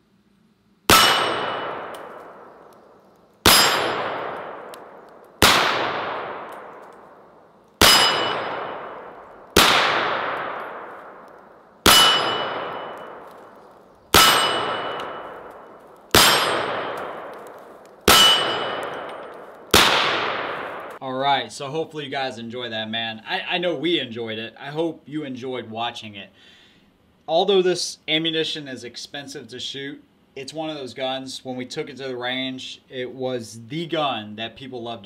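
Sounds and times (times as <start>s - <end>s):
steel targets ringing: 0.9s - 2.0s, 3.5s - 4.4s, 7.8s - 9.2s, 11.9s - 13.3s, 14.1s - 15.6s, 16.2s - 17.3s, 18.1s - 19.4s
rifle shots: 0.9s - 2.7s, 3.4s - 21.0s.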